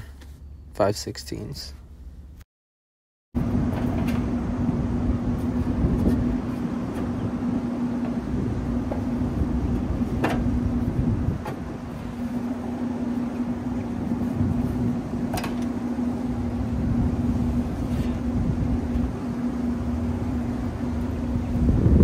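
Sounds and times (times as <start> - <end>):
mechanical hum with rumble: 0.0 - 2.4, 3.4 - 22.0.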